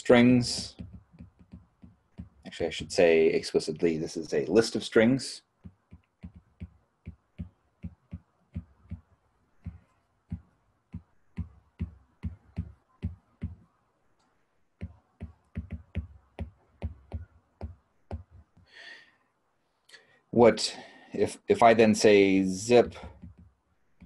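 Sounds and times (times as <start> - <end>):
stylus tapping on tablet: 0.4 - 2.5, 5.6 - 13.7, 14.8 - 18.7, 23.0 - 24.0.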